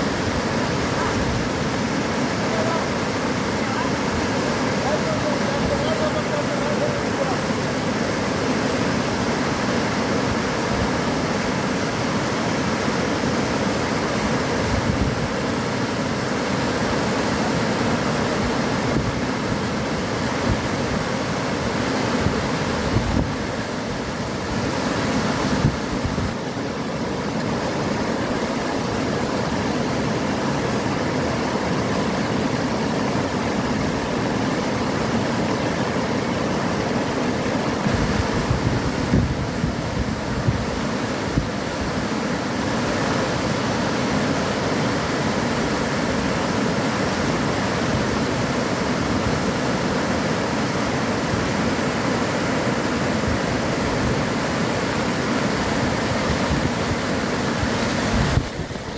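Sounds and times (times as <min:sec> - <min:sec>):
floodwater rushing over rapids: 0:00.0 - 0:58.9.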